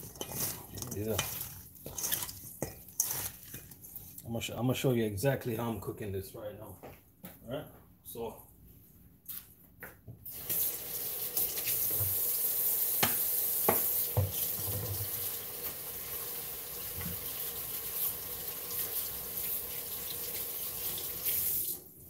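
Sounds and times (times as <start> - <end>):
tap running into sink: 13.0 - 15.8.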